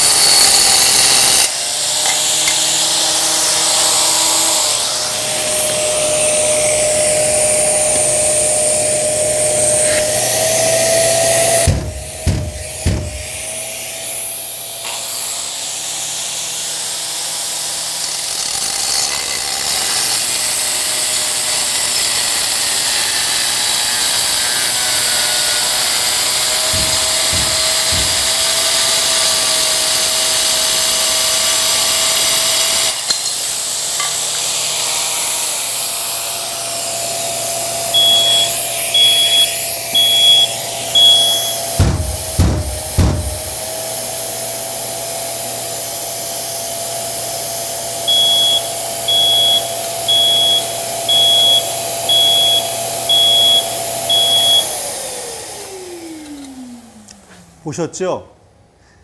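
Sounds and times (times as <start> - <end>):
extraction vacuum running: 0.0 - 16.4, 24.1 - 33.0, 35.5 - 57.6
angle grinder cutting tile: 0.0 - 56.7
low knocks: 11.6 - 13.5, 26.6 - 29.0, 41.8 - 43.7.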